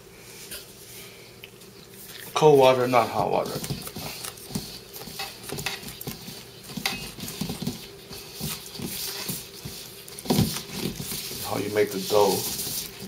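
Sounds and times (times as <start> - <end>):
chopsticks scraping metal bowl: 11.4 - 13.0.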